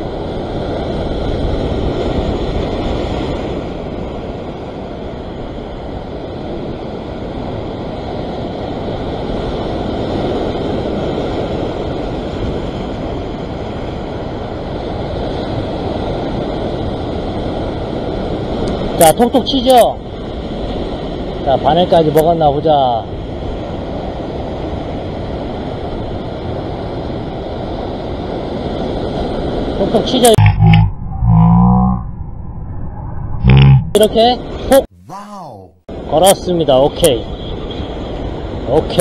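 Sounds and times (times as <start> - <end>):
surf washing over rocks: 0.0 - 30.4.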